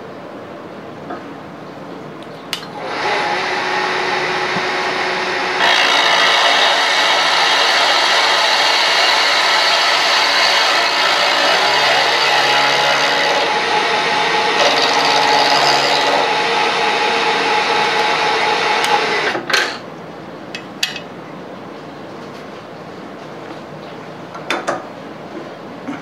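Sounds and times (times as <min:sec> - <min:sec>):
end mill cutting metal: 0:02.6 - 0:19.8
milling machine spindle running: 0:02.7 - 0:19.8.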